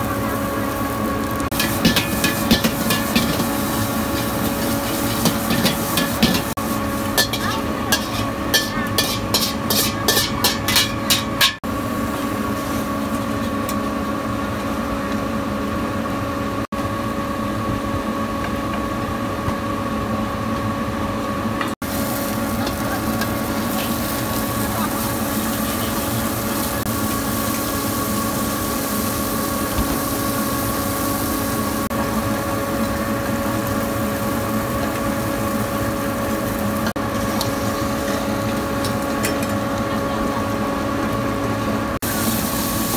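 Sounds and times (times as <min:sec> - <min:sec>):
shrimp frying in oil: 0:00.0 - 0:13.9, 0:21.8 - 0:42.9
gas burner rushing: 0:00.0 - 0:20.0, 0:21.6 - 0:42.9
constant hum: 0:00.0 - 0:42.9
spatula scraping and tapping wok: 0:01.5 - 0:11.6.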